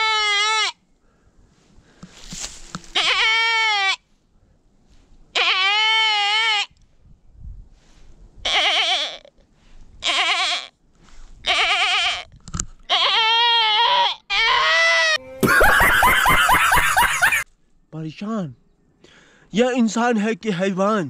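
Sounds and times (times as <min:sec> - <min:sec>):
goat-like bleating: 0:00.0 - 0:00.8, 0:02.9 - 0:04.0, 0:05.4 - 0:06.7, 0:08.4 - 0:09.3, 0:10.0 - 0:10.7, 0:11.4 - 0:12.3, 0:12.9 - 0:15.4.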